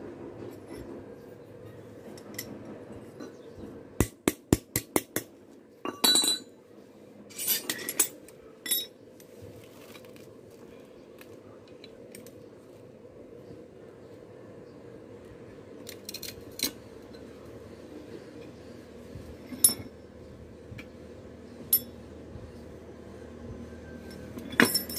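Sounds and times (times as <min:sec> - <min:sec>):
low steady hum: 0:00.0 - 0:24.9
metal tools clattering: 0:05.9 - 0:06.6, 0:07.3 - 0:09.0, 0:24.1 - 0:24.9.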